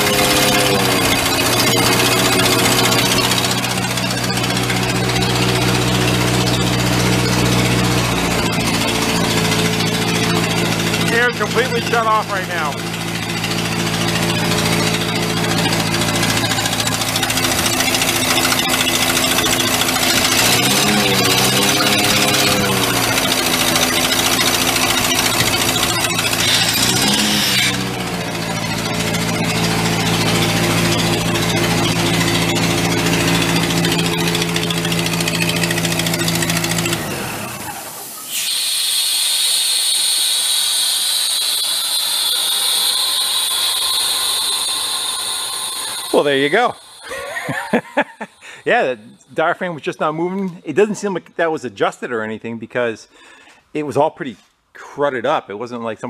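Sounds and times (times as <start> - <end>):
air compressor engine running: 0.0 - 50.9
compressed air hissing: 38.0 - 48.7.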